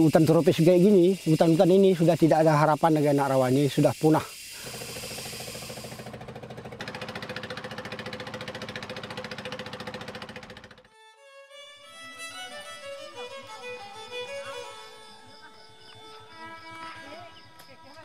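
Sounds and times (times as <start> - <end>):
boat engine chugging: 4.3 - 10.9
slow music with bowed strings: 10.9 - 17.4.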